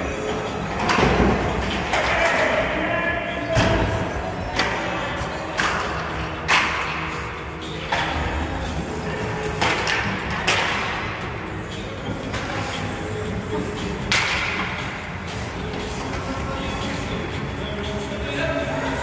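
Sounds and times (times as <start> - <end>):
puck and sticks cracking off boards: 0.8 - 2.6, 5.5 - 7.1, 9.5 - 11.2, 14.0 - 14.9.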